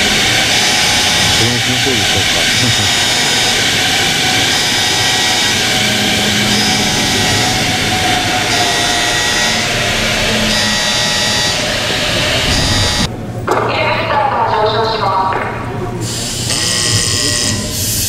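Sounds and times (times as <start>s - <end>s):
high whining tones: 0.0s - 13.4s
loud machinery noise: 0.0s - 13.9s, 15.6s - 18.0s.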